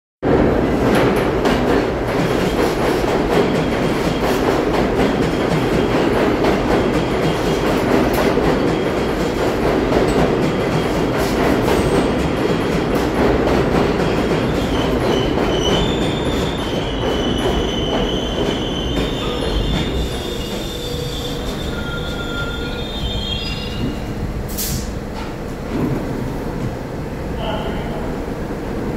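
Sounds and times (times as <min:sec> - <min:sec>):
subway wheels rumbling on rails: 0:00.2 - 0:28.9
train brakes squealing: 0:14.5 - 0:24.9.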